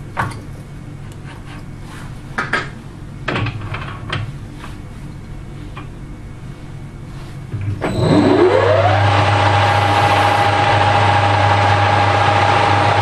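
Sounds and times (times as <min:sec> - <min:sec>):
steady low hum: 0:04.0 - 0:13.0.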